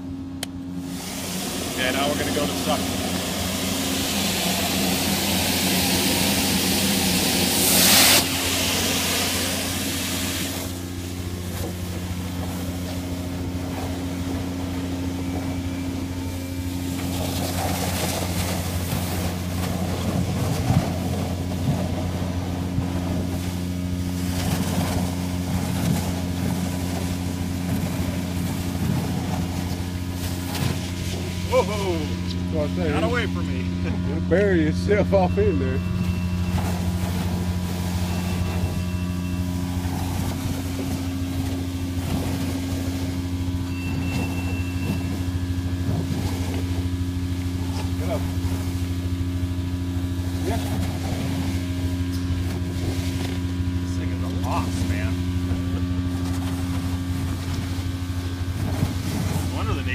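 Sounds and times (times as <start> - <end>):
industrial vacuum humming: 0.0 - 59.9
air rushing into hose: 0.8 - 1.8, 2.8 - 10.8.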